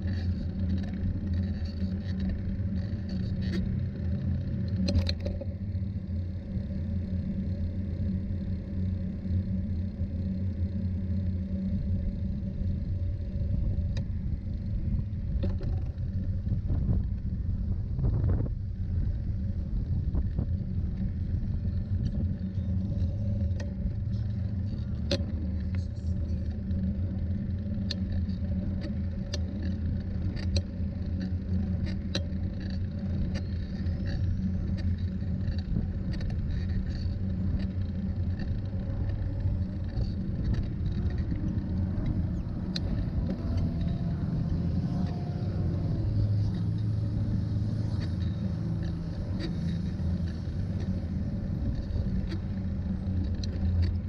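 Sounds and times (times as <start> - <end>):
tricycle rumble on asphalt: 0.0 - 54.0
car traffic: 18.7 - 54.0.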